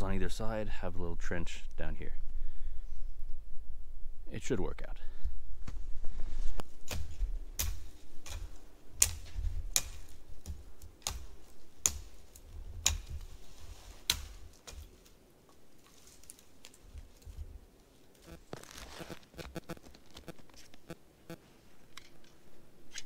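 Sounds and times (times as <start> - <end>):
twigs snapping: 6.7 - 13.3, 14.0 - 17.4, 18.1 - 19.0.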